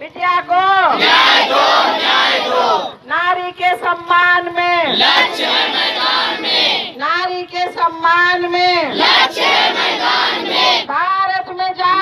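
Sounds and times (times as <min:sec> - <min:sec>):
woman chanting through loudspeaker: 0:02.4 - 0:12.0.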